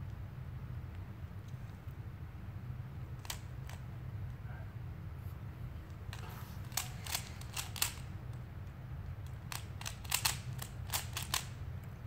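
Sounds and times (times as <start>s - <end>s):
steady low hum: 0.0s - 12.0s
speed cube plastic clicks: 3.1s - 4.4s, 5.8s - 12.0s.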